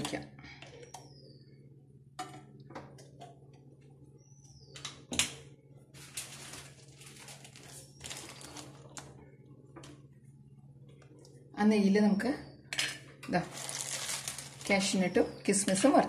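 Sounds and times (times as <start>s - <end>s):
steady low hum: 0.0s - 16.0s
ghee crackling and sizzling: 5.9s - 10.0s, 13.3s - 15.1s.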